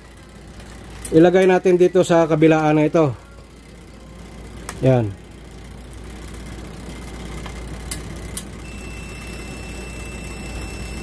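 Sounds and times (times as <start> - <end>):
meter continuity beep: 8.6 - 11.0.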